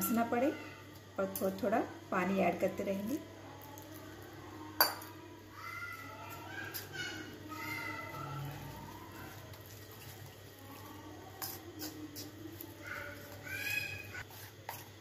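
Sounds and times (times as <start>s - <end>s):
spoon stirring batter: 2.5s - 15.0s
spoon clinking against bowl: 4.8s - 5.1s.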